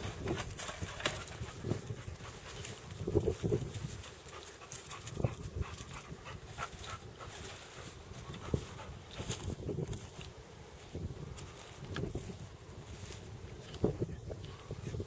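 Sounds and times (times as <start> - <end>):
dog panting: 4.1 - 9.4.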